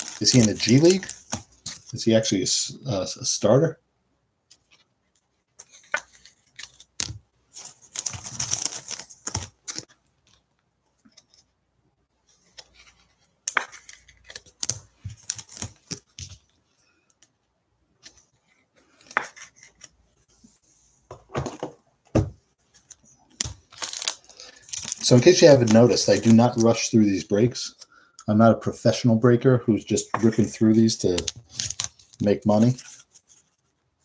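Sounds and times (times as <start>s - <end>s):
trading cards rustling and clicking: 0.0s - 2.0s, 4.5s - 11.5s, 12.4s - 16.6s, 22.7s - 27.9s, 29.9s - 33.7s.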